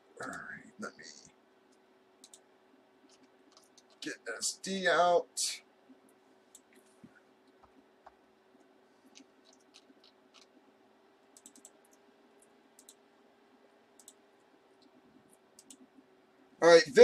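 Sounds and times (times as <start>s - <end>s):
faint steady hum: 0.0s - 17.0s
keyboard and mouse clicking: 1.7s - 2.4s, 3.1s - 4.0s, 9.1s - 10.6s, 11.4s - 13.0s, 14.0s - 14.2s, 14.8s - 15.9s.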